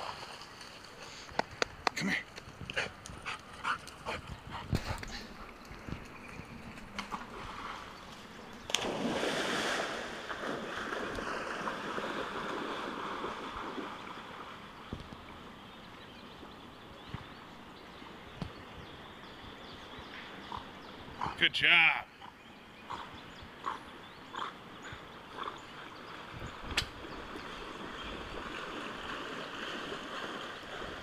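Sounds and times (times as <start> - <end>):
splashing water: 0.0 - 15.3, 25.9 - 31.0
low steady water sound: 0.0 - 31.0
dog leaping into water: 8.7 - 14.0.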